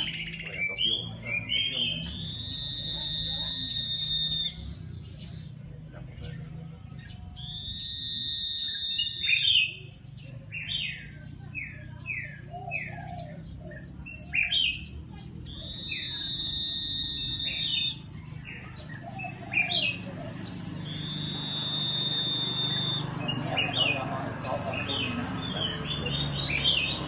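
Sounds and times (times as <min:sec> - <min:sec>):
bird whistle and quick notes: 0:00.5 - 0:05.4, 0:07.4 - 0:09.8, 0:15.5 - 0:18.6, 0:20.8 - 0:24.0.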